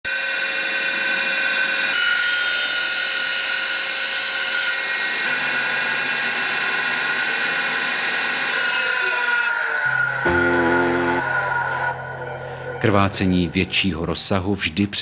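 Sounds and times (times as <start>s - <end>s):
table saw whining: 0.0s - 13.8s
saw blade cutting wood: 1.9s - 5.4s.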